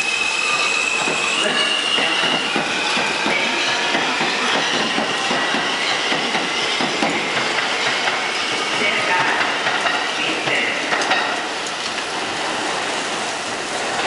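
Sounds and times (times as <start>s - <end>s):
high wheel squeal: 0.0s - 8.7s
train wheels clattering over rail joints: 0.9s - 12.0s.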